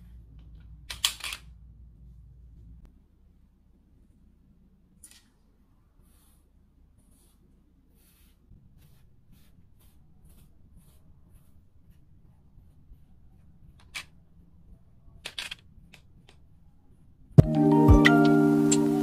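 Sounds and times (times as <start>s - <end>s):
brush stroking cat fur: 6.0s - 13.8s
music with chiming mallet tones: 17.4s - 19.0s.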